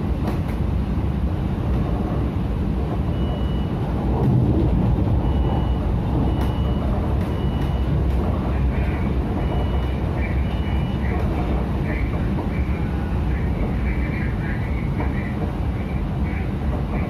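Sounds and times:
train wheels rumbling on rail: 0.0 - 17.0.

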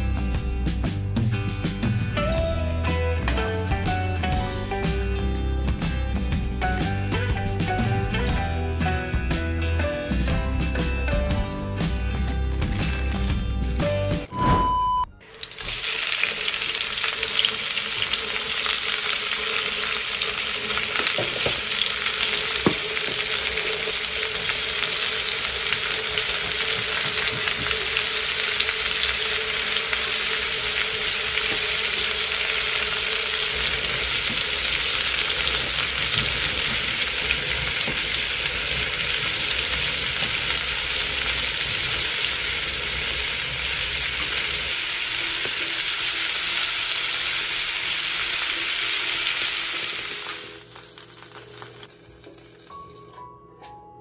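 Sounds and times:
eggs sizzling in oil: 15.2 - 53.1.

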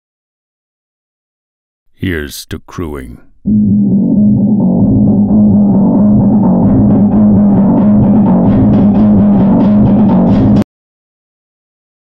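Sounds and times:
deep steady bass note: 3.5 - 10.6
heavy pounding drums: 6.2 - 10.6.

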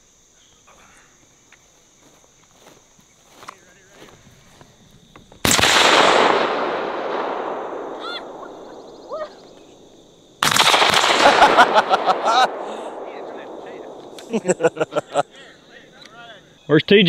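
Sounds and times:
shotgun shot: 5.4 - 8.8, 10.4 - 14.4.

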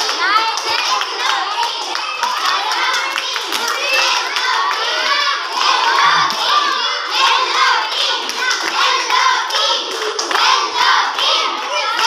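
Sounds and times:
children chanting and cheering: 0.0 - 12.0
hand claps: 7.2 - 12.0.

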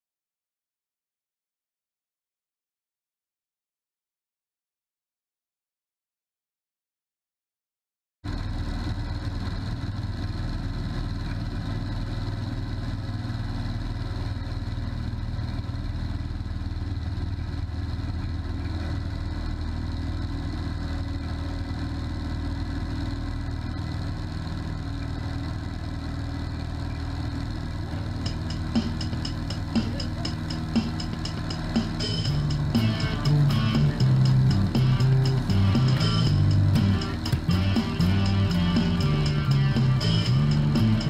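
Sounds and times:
propeller plane engine drone: 8.3 - 41.0.

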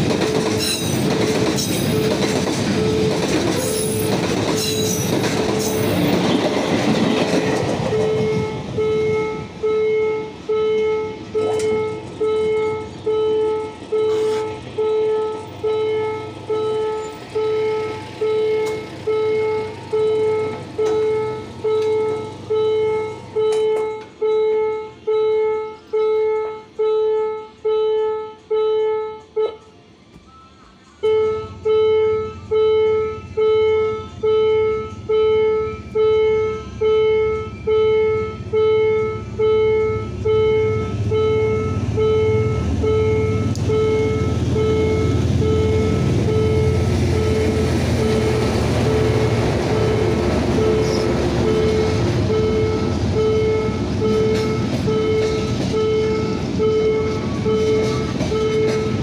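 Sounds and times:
low engine rumble: 30.1 - 59.0.

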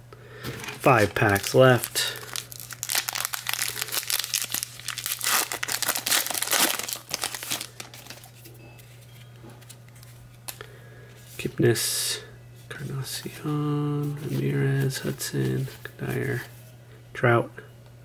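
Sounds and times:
wrapper tearing and crinkling: 0.7 - 8.4.

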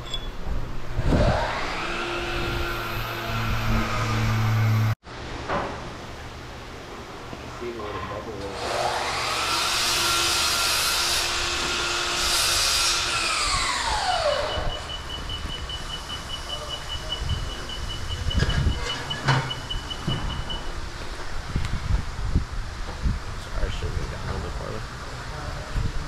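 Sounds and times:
rapid high-pitched beeping: 14.5 - 20.7.

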